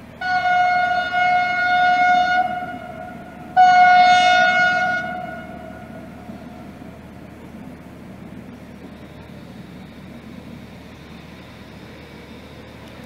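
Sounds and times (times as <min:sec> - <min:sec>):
horn blasts: 0:00.2 - 0:06.6
steady low rumble: 0:04.5 - 0:13.0.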